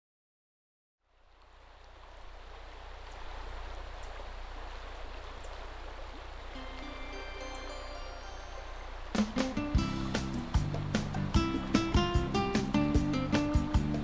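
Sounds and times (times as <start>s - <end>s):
rushing river water: 1.0s - 14.0s
music: 6.5s - 14.0s.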